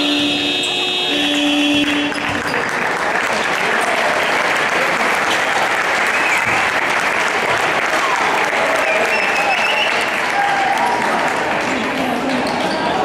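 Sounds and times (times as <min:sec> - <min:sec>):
scoreboard buzzer horn tone: 0:00.0 - 0:02.6
crowd applauding: 0:01.1 - 0:13.0.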